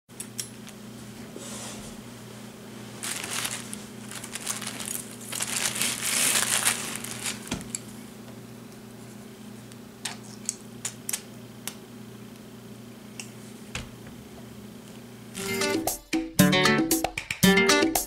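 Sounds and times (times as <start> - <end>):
packaging crinkling: 2.9 - 8.0.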